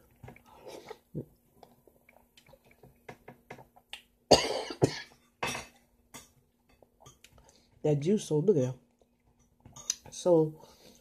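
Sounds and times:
person coughing: 4.3 - 5.2.

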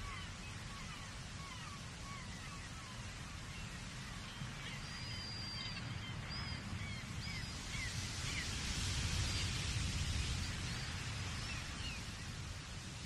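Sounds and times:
wind and surf rumble: 0.0 - 13.0.

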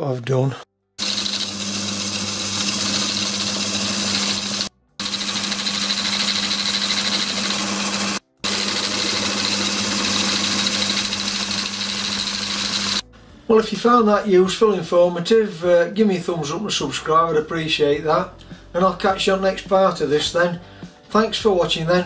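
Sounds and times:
small lathe motor humming: 1.0 - 13.0.

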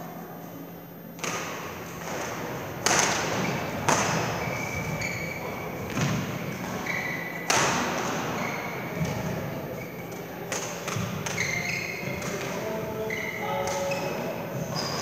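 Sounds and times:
court shoes squeaking on floor: 1.2 - 15.0
badminton racket hitting shuttlecock: 2.8 - 4.2.

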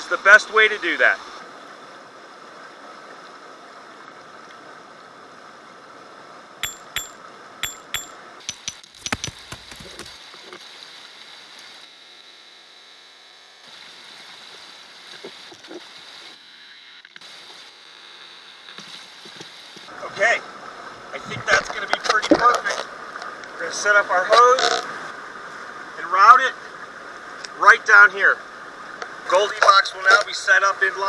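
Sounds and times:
hard objects knocking together: 6.6 - 10.2.

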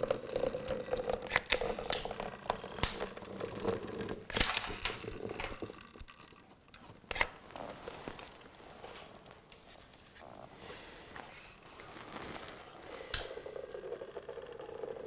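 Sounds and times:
caulking gun clicks and rattles: 4.3 - 7.4.

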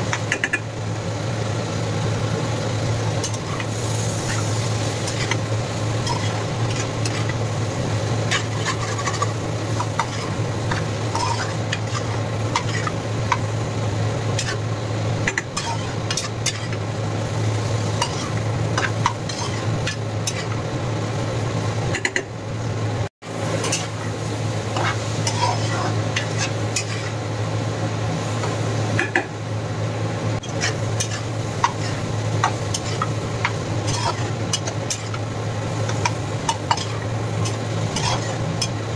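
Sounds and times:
food sizzling: 0.0 - 38.9
spatula scraping frying pan: 3.2 - 13.5, 14.3 - 14.6, 15.2 - 16.8, 17.9 - 20.6, 23.6 - 24.0, 24.7 - 27.2, 30.4 - 38.8.

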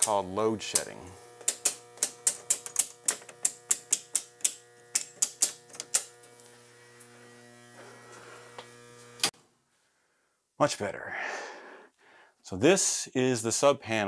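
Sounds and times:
circuit breakers clicking off: 0.0 - 9.3.

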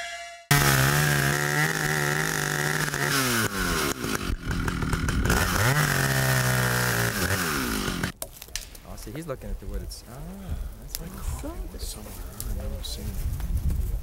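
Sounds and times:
chainsaw cutting wood: 0.5 - 8.2.

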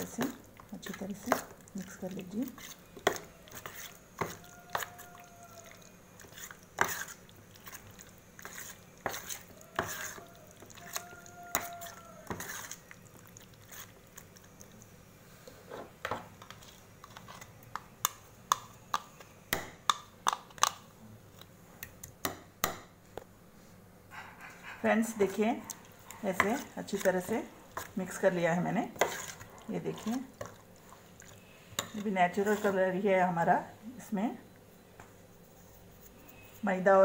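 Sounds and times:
wet squelching of marinade: 0.0 - 14.9, 25.2 - 33.2.

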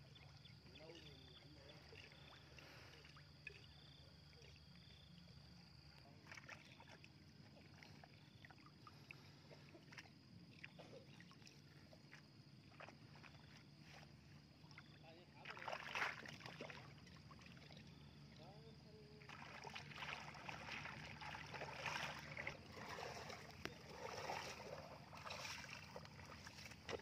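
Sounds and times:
water splashing and dripping: 15.4 - 17.8, 19.2 - 27.0.

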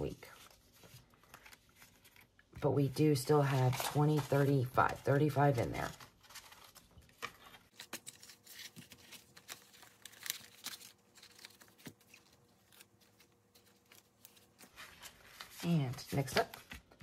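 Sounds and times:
paper and plastic rustling: 0.0 - 2.6, 3.2 - 17.0.

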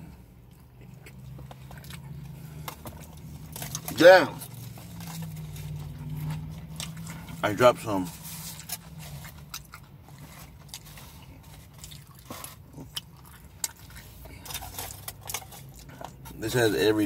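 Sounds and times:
person chewing food: 0.0 - 16.4.

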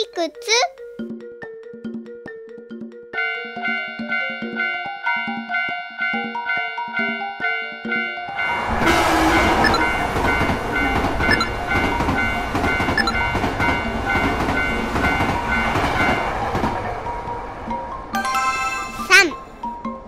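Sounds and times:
level-crossing alarm ringing: 6.9 - 16.4
train running over rails: 8.2 - 19.7.

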